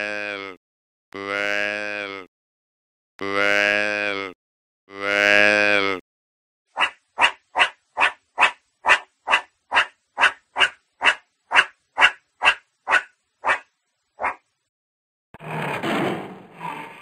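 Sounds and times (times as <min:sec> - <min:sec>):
meerkat barking: 0:06.8 - 0:14.4.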